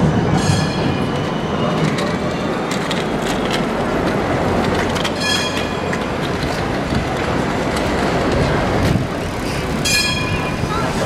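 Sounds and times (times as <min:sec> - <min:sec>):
tram bell ring: 0:00.0 - 0:01.2, 0:05.1 - 0:06.0, 0:09.8 - 0:10.7
street noise: 0:00.0 - 0:11.0
tram wheels rumbling on rails: 0:00.0 - 0:11.0.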